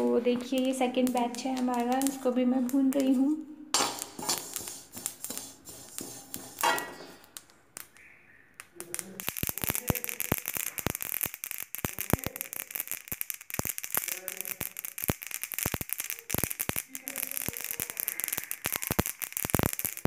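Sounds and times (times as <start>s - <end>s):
seeds crackling and popping: 0.0s - 20.0s
metal spatula scraping seeds: 3.8s - 7.3s.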